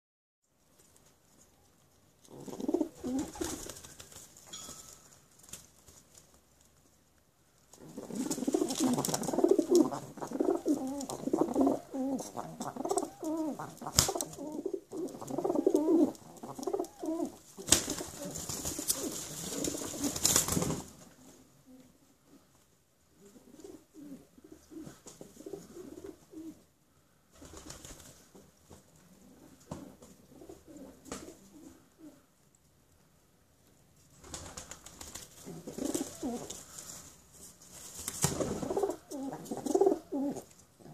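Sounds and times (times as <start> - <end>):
wings flapping and scuffling: 0.6 - 6.9, 7.7 - 21.4, 27.3 - 31.6, 34.1 - 40.6
pigeons cooing: 2.3 - 3.6, 7.8 - 20.2, 35.4 - 36.8, 38.3 - 40.9.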